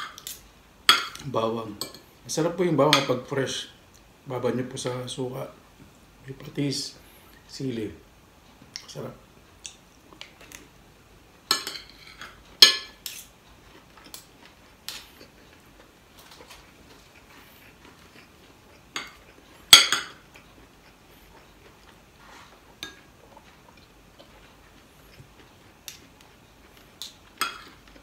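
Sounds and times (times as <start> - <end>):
cutlery clinking on plates: 11.5 - 13.3, 19.0 - 20.2, 27.4 - 28.0.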